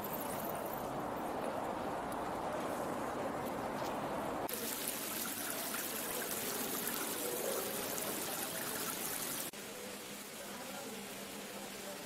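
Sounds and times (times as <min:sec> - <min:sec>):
water splashing through stone channels: 0:04.5 - 0:09.6.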